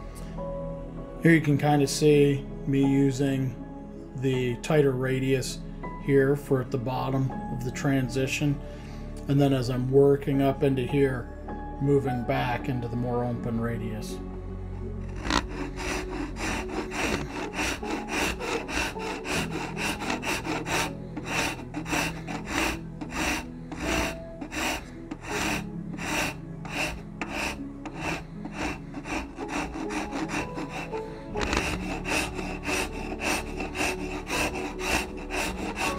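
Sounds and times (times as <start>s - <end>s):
file rasping on wood: 15.0s - 35.9s.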